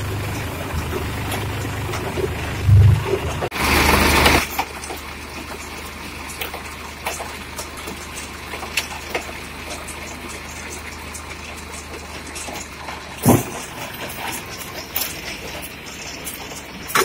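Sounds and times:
tractor engine running: 0:00.0 - 0:17.0
loud rush: 0:02.3 - 0:04.4.

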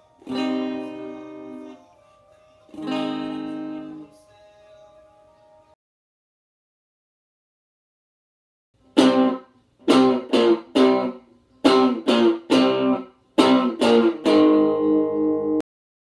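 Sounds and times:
distorted electric guitar chords: 0:00.0 - 0:01.8, 0:02.7 - 0:04.0, 0:09.0 - 0:15.6.

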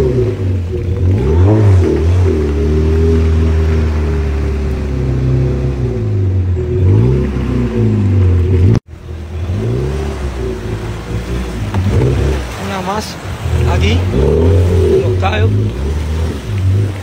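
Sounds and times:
motorboat engine running: 0:00.0 - 0:17.0.

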